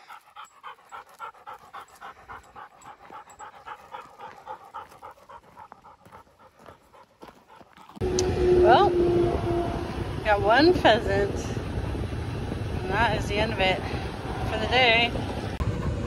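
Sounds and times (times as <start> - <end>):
dog panting rapidly: 0.0 - 8.0, 14.8 - 16.0.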